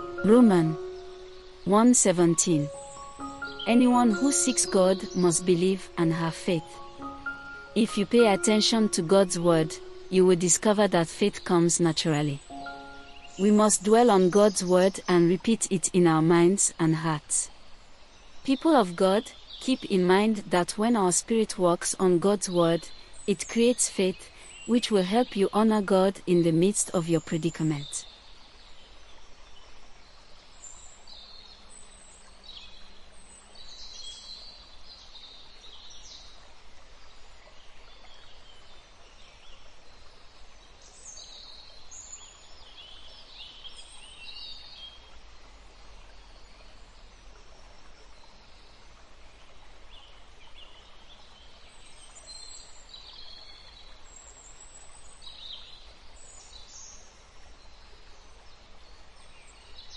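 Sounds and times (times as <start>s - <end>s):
birds chirping: 0.0s - 16.2s
soft steady hiss: 0.0s - 59.9s.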